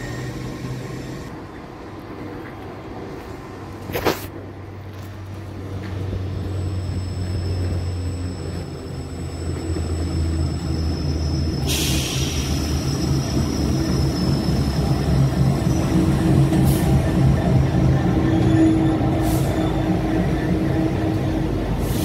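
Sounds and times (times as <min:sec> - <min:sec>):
locomotive engine throbbing: 0:06.0 - 0:22.0.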